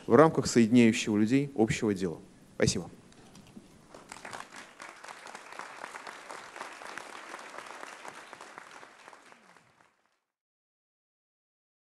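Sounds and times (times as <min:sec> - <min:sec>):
audience applauding: 0:03.9 - 0:10.2.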